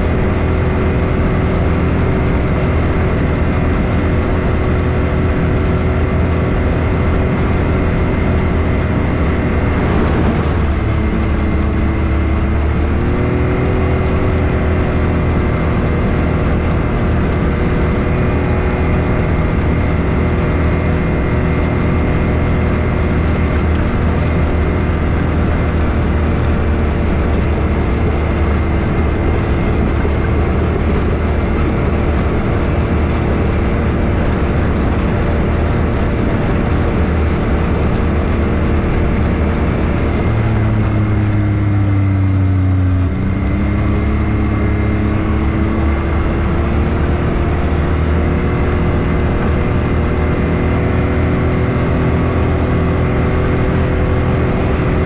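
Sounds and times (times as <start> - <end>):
turbocharged engine running: 0.0 - 55.0.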